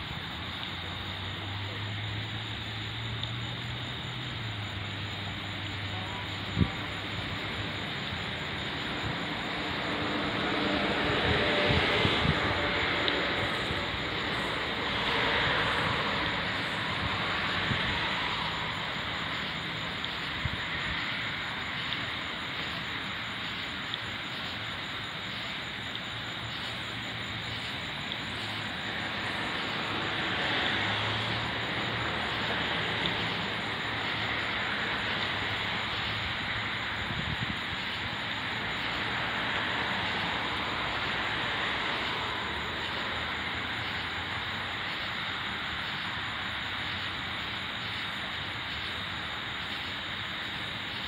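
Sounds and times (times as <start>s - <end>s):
outdoor rumble and hiss: 0.0s - 51.0s
faint ticks: 3.1s - 3.5s, 20.0s - 20.3s, 23.8s - 24.1s.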